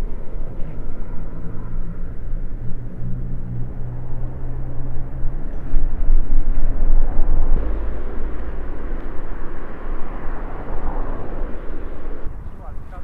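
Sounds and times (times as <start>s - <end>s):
tyre noise on asphalt: 4.8s - 12.3s.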